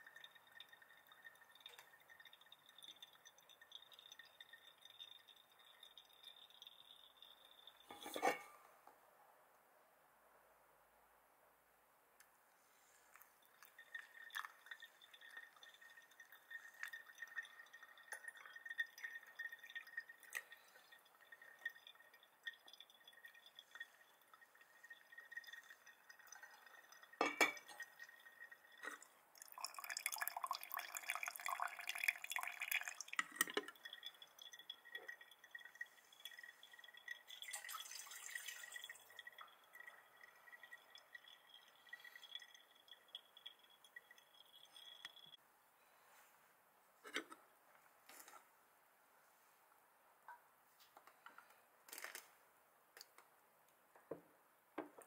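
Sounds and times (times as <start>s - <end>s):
coffee dripping into glass server: 0.0s - 8.6s, 13.6s - 45.4s
rustling noise: 45.9s - 49.7s.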